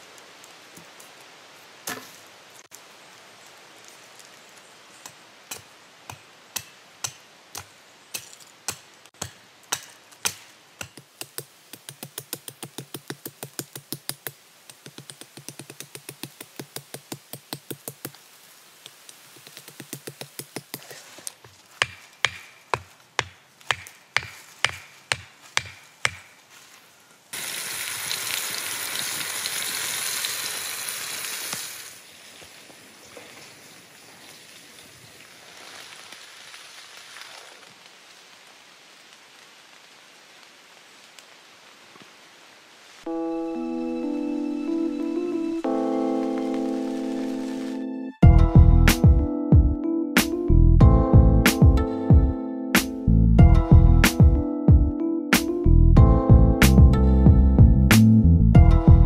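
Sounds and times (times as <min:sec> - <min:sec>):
hatchet chopping wood: 0:05.0 - 0:18.2, 0:19.4 - 0:20.9, 0:21.7 - 0:26.4
loud steady hiss: 0:27.3 - 0:43.2.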